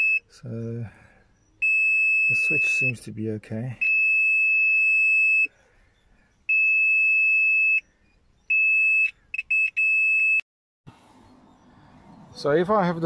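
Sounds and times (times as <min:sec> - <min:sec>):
multimeter beeping: 0:01.5 - 0:03.1, 0:03.8 - 0:05.5, 0:06.5 - 0:07.8.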